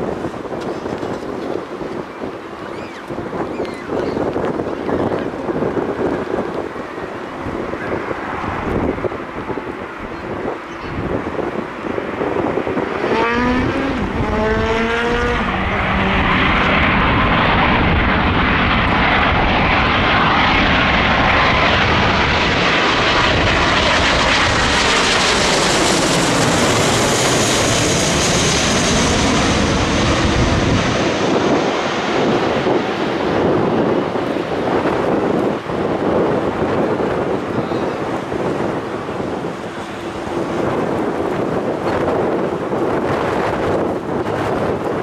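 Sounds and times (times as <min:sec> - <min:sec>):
jet engine rushing overhead: 0:00.0 - 0:45.0
whine sliding down in pitch: 0:12.8 - 0:19.0.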